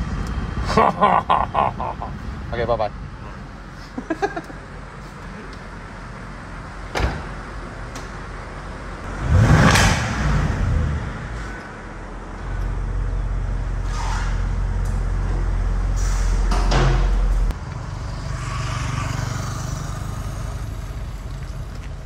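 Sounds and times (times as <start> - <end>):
car engine deep rumble: 0.0 - 18.2.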